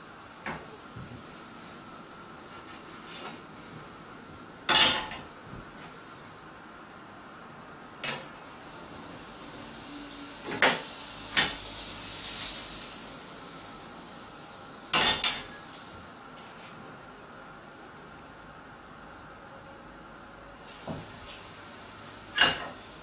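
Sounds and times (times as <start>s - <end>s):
butter sizzling in frying pan: 8.4s - 16.2s, 20.6s - 23.0s.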